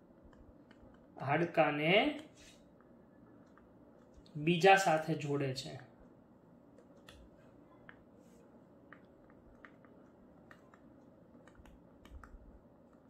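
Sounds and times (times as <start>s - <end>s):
stylus tapping on tablet screen: 0.2s - 1.1s, 8.8s - 13.0s.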